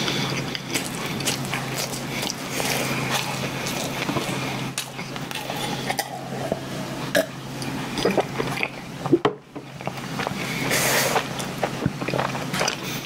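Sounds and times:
chewing bread: 0.0s - 6.4s, 7.6s - 8.9s, 9.6s - 13.0s
gulping milk: 8.0s - 9.2s.

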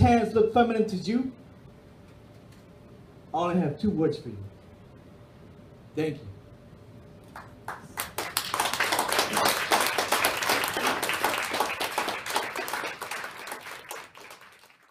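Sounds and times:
audience applauding: 7.4s - 14.9s.

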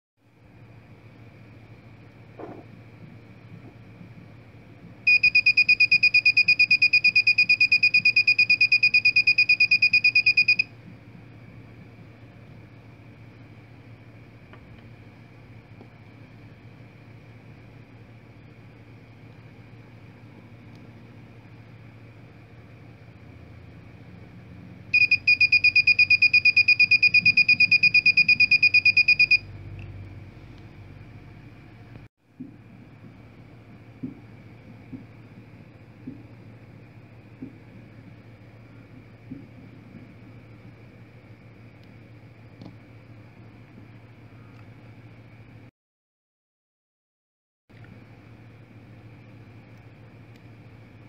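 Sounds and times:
electronic buzzer beeping rapidly: 5.1s - 10.7s, 25.0s - 29.4s.

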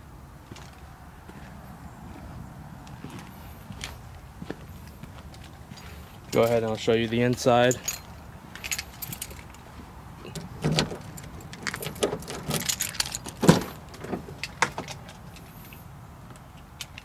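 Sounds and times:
light clicks and rattles: 4.8s - 17.0s.

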